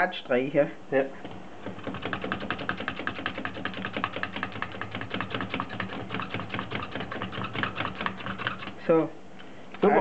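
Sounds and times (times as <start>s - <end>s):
knife scraping dough off wood: 1.7s - 8.8s.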